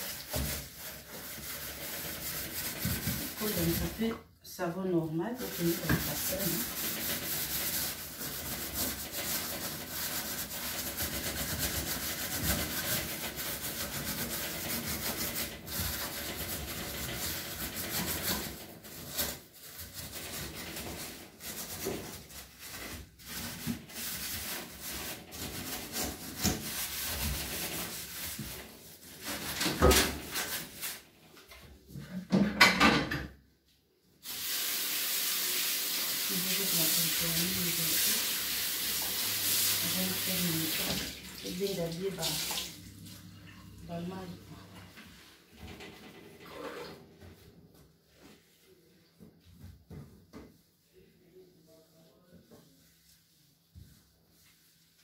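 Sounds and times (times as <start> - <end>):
gloved hand scrubbing stove: 0.0 - 4.2, 5.0 - 31.1, 35.9 - 42.5
scrapes or knocks: 0.0 - 4.2, 5.4 - 31.0.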